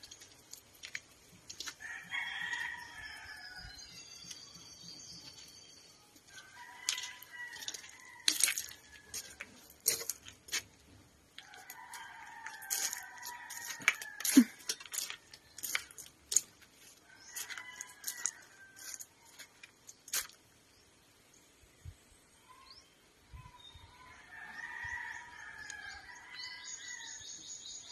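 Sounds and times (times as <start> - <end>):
sharp clicks and crunches: 0.0 - 1.8, 6.8 - 10.8, 11.4 - 20.4
rooster crowing: 1.8 - 3.8, 6.4 - 9.5, 11.4 - 15.2, 17.3 - 19.0.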